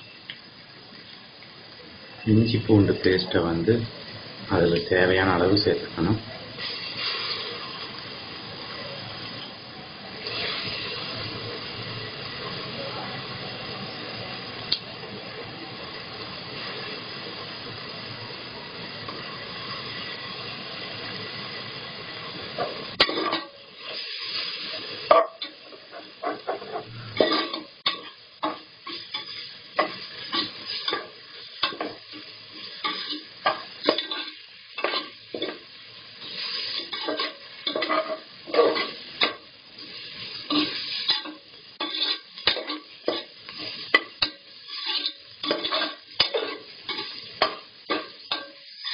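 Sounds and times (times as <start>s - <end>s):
onions sizzling in hot oil: 0.0s - 48.9s
metal spoon scraping pot: 41.8s - 43.2s, 44.7s - 47.2s.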